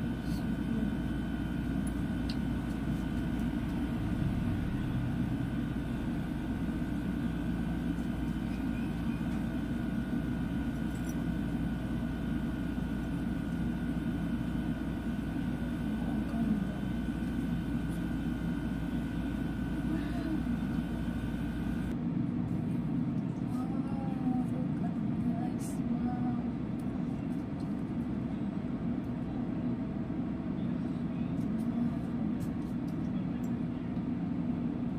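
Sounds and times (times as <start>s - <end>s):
steady machine hum: 0.0s - 26.8s.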